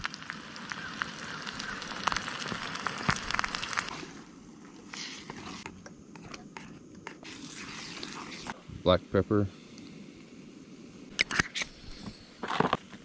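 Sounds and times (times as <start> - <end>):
food sizzling in a skillet: 0.0 - 5.6.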